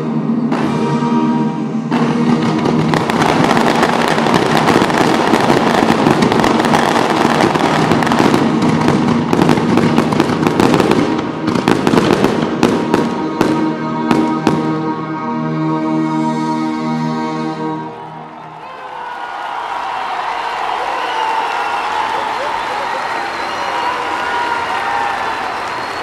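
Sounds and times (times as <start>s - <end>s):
fireworks bangs: 0.4s - 14.8s
fireworks crackling: 1.9s - 14.7s.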